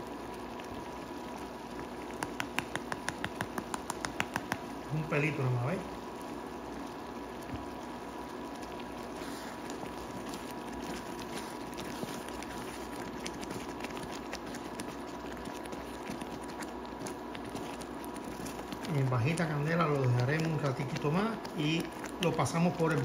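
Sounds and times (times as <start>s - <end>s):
jam bubbling in a pan: 0.0s - 23.0s
spatula stirring: 0.0s - 23.0s.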